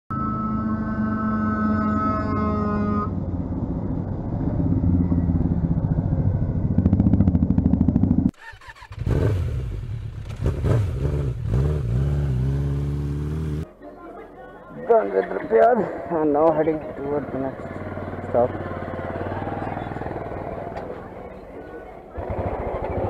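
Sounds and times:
uneven vehicle noise: 0.1s - 23.0s
motorcycle engine running: 3.1s - 13.6s, 16.0s - 23.0s.

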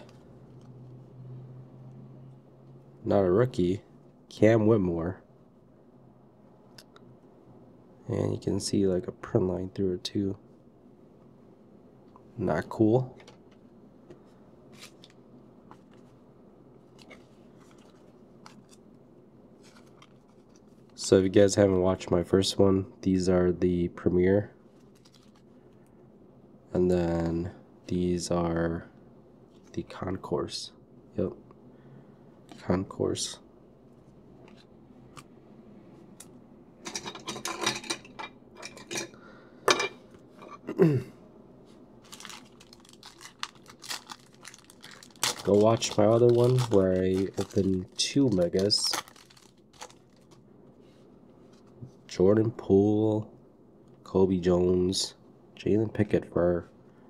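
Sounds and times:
low steady hum: 0.0s - 57.0s
plastic sleeve crinkling: 24.8s - 25.5s, 42.0s - 50.5s.

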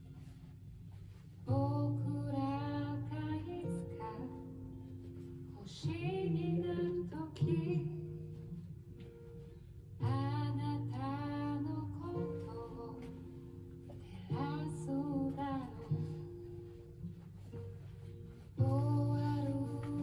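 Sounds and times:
guitar accompaniment: 0.0s - 20.0s
woman singing: 1.5s - 4.9s, 5.5s - 8.4s, 10.0s - 16.6s, 18.6s - 20.0s.

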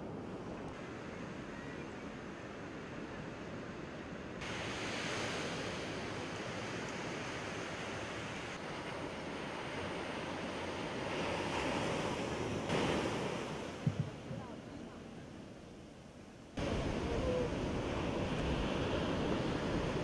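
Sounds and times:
surf breaking on beach: 4.4s - 14.6s, 16.6s - 20.0s
wind on microphone: 16.6s - 20.0s.

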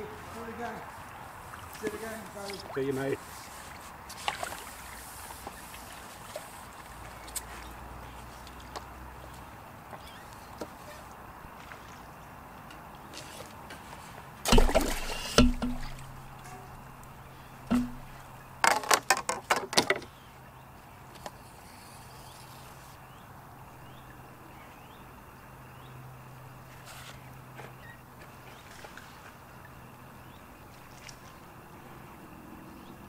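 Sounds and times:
fishing tackle knocks: 14.5s - 20.0s.

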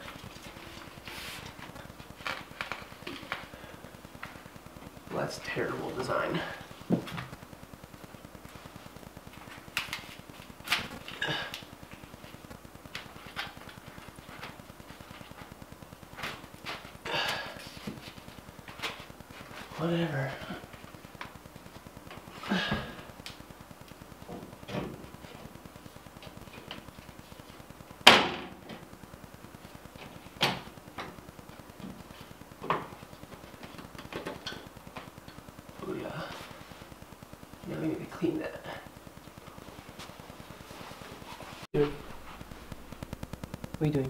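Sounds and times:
faint low buzz: 17.8s - 44.0s.

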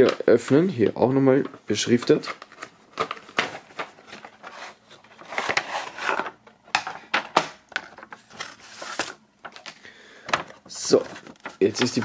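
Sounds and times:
plastic scraping against cardboard: 2.0s - 6.4s, 10.7s - 12.0s.

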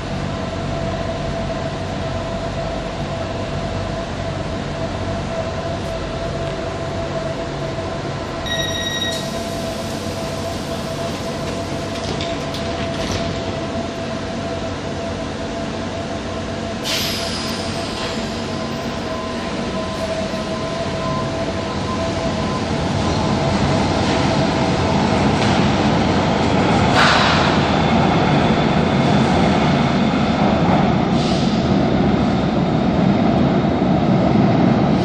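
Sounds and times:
train humming and whining: 0.0s - 35.0s
short electronic beep: 8.4s - 9.4s
air hiss: 16.8s - 18.2s.

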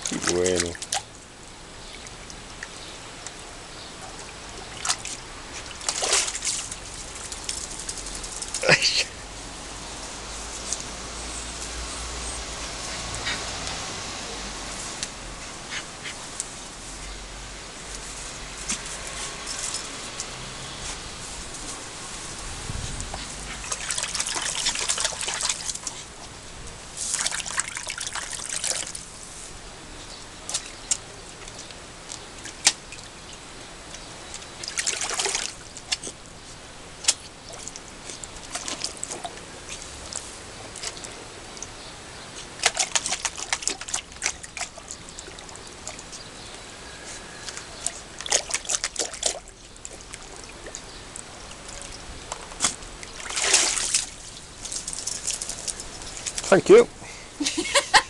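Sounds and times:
water pouring and splashing: 0.0s - 9.0s, 18.0s - 29.6s, 30.4s - 41.8s, 42.4s - 46.3s, 47.4s - 56.8s.

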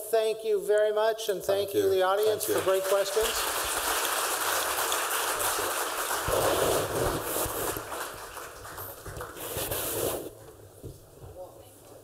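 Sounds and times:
audience applauding: 2.3s - 9.5s.

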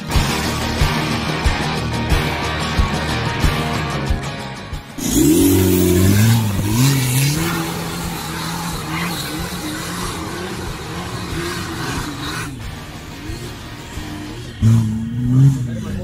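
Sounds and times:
off-road vehicle engine revving: 4.8s - 16.0s.

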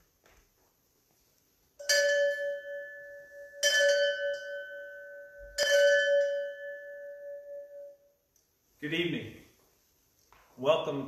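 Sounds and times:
bell ringing: 1.8s - 8.2s.

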